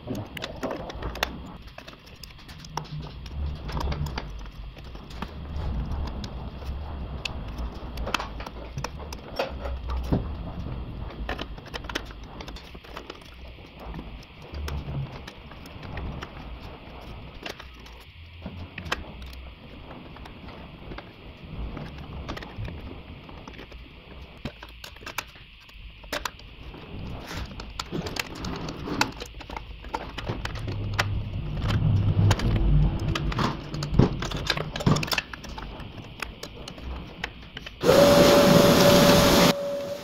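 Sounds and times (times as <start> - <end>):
loud rushing noise with whistle: 37.8 - 40.0.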